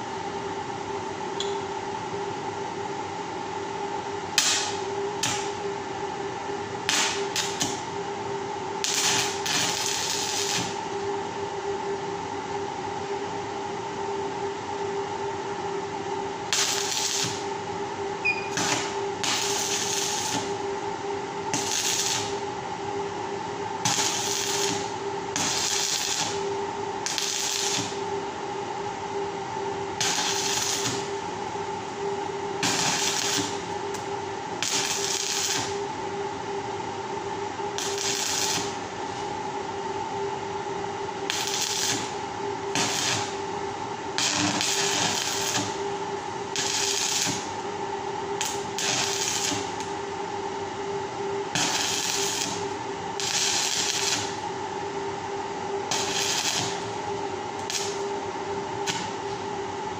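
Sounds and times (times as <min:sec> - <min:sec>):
steady hum: 0:00.0 - 0:59.9
arc welding crackling: 0:04.4 - 0:05.6, 0:06.8 - 0:07.8, 0:08.8 - 0:10.9, 0:16.5 - 0:17.5, 0:18.5 - 0:20.7, 0:21.5 - 0:22.5, 0:23.8 - 0:28.1, 0:30.0 - 0:35.9, 0:37.8 - 0:38.9, 0:41.3 - 0:47.7, 0:48.3 - 0:50.0, 0:51.5 - 0:54.5, 0:55.8 - 0:58.2, 0:58.8 - 0:59.4.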